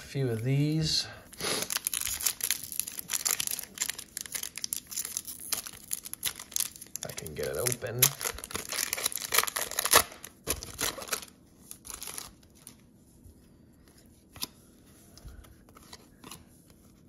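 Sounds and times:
wrapper crinkling and tearing: 1.4s - 12.8s.

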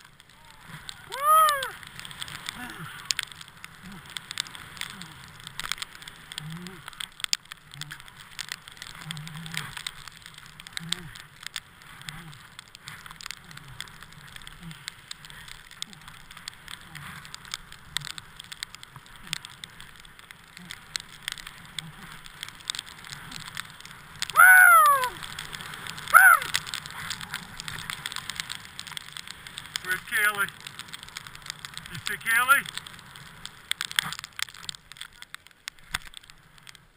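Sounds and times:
small clicks and taps: 0.0s - 24.4s, 25.0s - 36.9s
person whooping: 0.4s - 1.8s, 2.6s - 2.9s, 24.3s - 25.3s, 26.1s - 26.6s.

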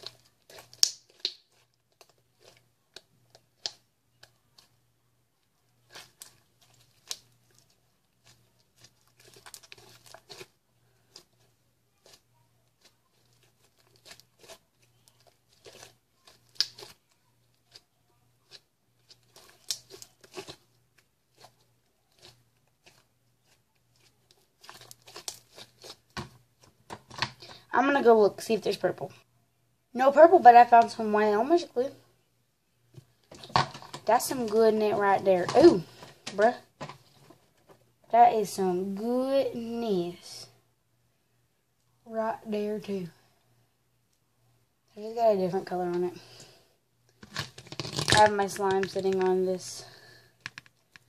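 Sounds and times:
slime squeezed popping: 47.2s - 49.2s.

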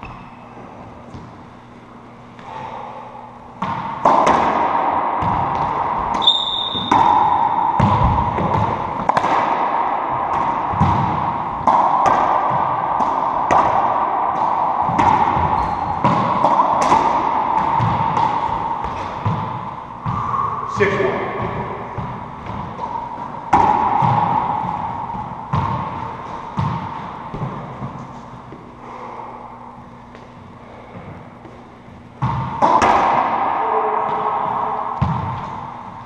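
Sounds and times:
racquets smacking ball: 3.5s - 20.3s, 21.2s - 28.7s, 30.0s - 36.0s
brief high squeak: 6.2s - 6.8s.

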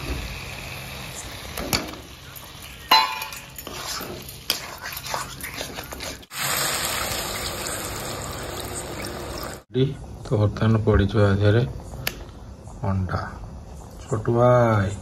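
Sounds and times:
light sizzle: 0.0s - 9.7s
metal spatula clinking and scraping pan: 2.4s - 5.0s.

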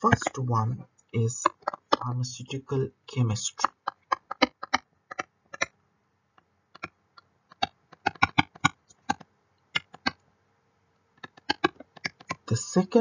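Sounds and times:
stylus tapping on tablet: 6.7s - 6.9s, 7.5s - 10.2s, 11.2s - 12.4s.

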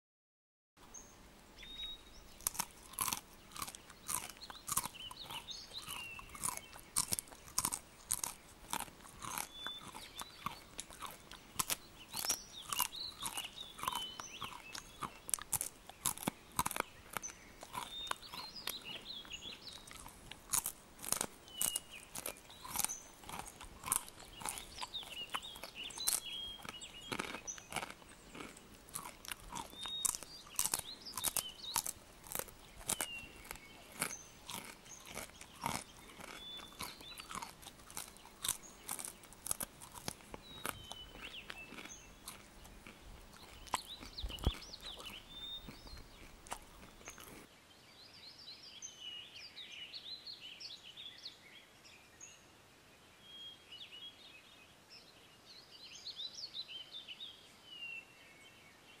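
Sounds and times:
caterpillar chewing leaf clicks: 2.4s - 47.4s.

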